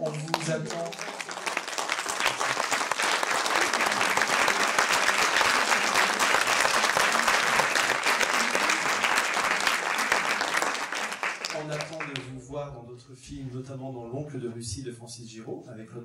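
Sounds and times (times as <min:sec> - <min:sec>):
audience applause: 0:00.0 - 0:12.4.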